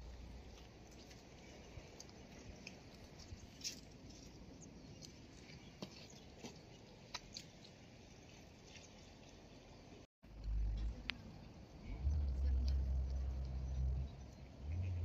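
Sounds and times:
low rumble on microphone: 10.2 - 15.0.

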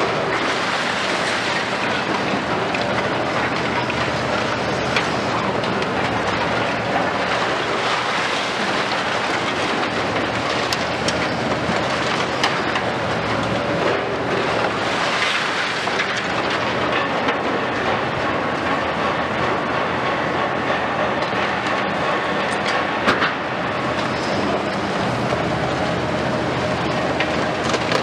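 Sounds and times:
excavator diesel engines running: 0.0 - 28.0
falling rubble crackle: 0.1 - 13.0, 14.4 - 17.4.

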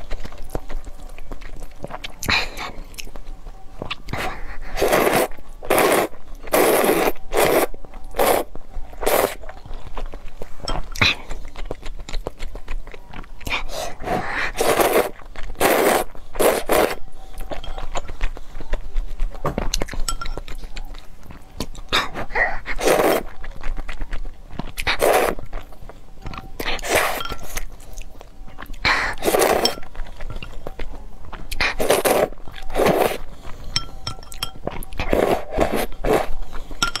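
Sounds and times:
wet chewing: 0.0 - 37.0
person slurping noodles: 4.1 - 9.4, 13.7 - 17.0, 24.8 - 25.4, 28.9 - 29.8, 31.5 - 33.2.

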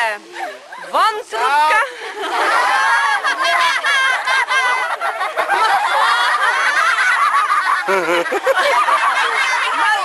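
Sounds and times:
children laughing and giggling: 0.2 - 10.0.

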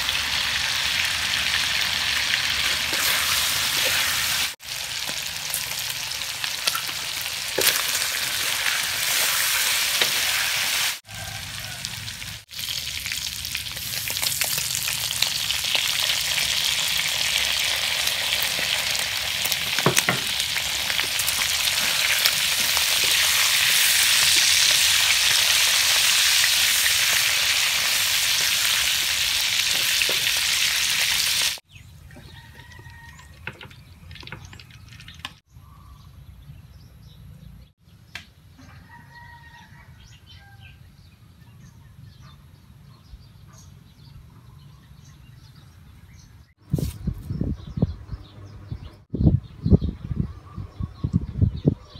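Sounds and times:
meat sizzling in a wok: 0.0 - 31.6.

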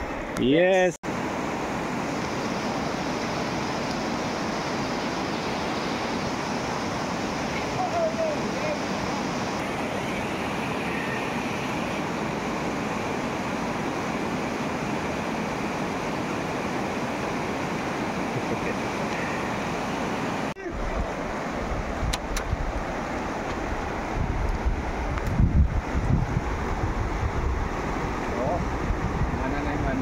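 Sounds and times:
river rapids rushing over rocks: 1.1 - 22.1
wind buffeting microphone: 20.6 - 30.0.

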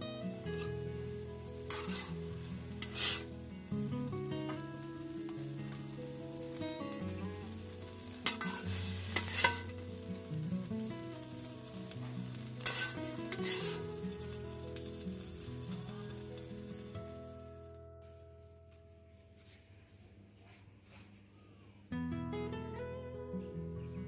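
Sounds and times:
instrumental background music: 0.0 - 18.8
metal spoon scraping wok: 1.6 - 3.4, 8.2 - 9.8, 12.6 - 14.0.

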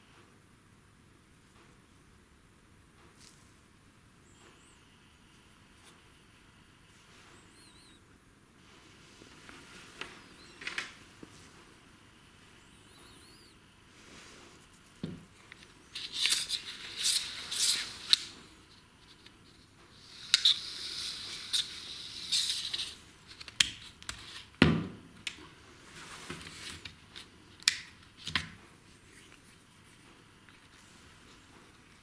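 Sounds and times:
plastic scratching and scraping: 14.8 - 19.7, 20.3 - 24.5.

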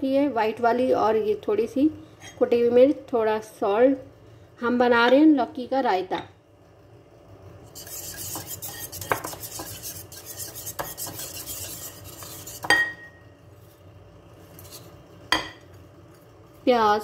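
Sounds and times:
whisk beating in a bowl: 7.6 - 13.0
whisk clinking against bowl: 7.7 - 13.1.

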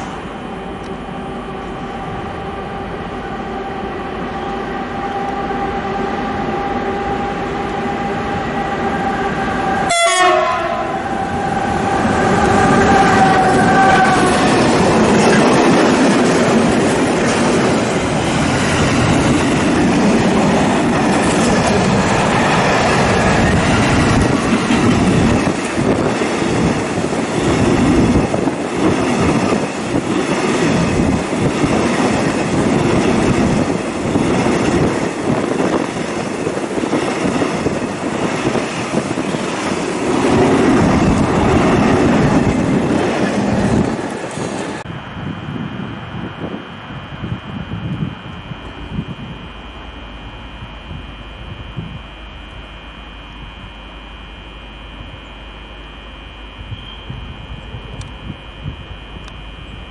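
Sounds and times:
electric locomotive whine: 0.0 - 59.9
train wheels clattering on rails: 12.0 - 44.9.

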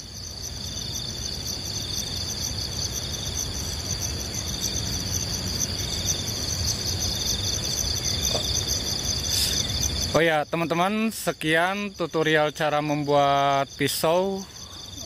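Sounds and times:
insects trilling: 0.0 - 15.0.

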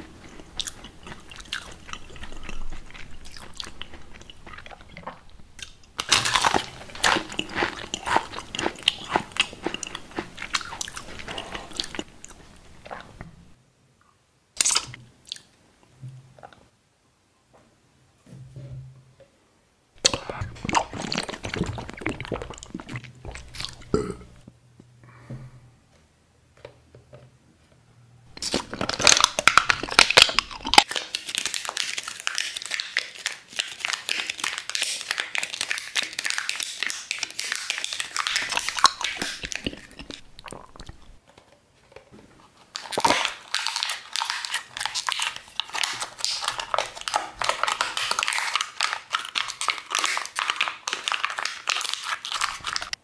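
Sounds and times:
plastic crumpling and crackling: 6.0 - 12.1, 20.1 - 23.8, 28.3 - 53.0.

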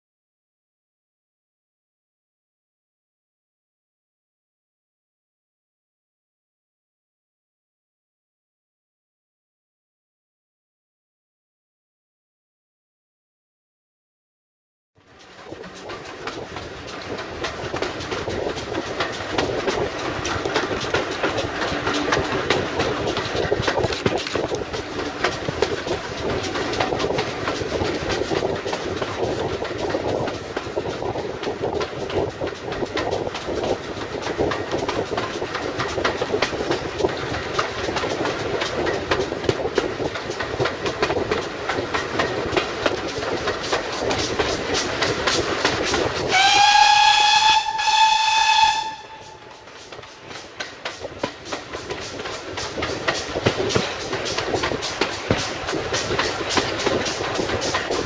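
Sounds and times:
train carriage rumble and clatter: 15.0 - 58.0
steam locomotive whistle: 21.6 - 23.2, 46.3 - 49.7.

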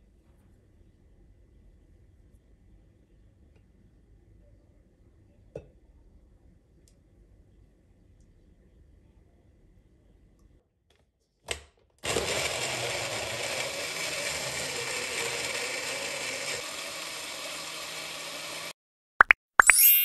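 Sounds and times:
blender motor running: 12.0 - 18.8.

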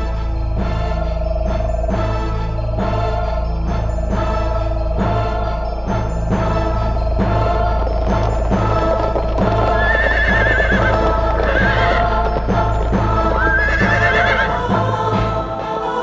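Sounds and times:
music with galloping rhythm: 0.0 - 16.0
horse whinnying: 9.0 - 14.6.

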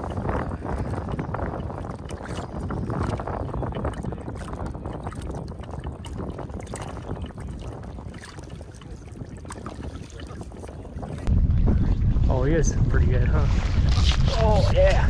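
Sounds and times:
small water splashes: 0.0 - 11.3
water lapping around legs: 0.0 - 11.3
wind buffeting microphone: 0.0 - 15.0.

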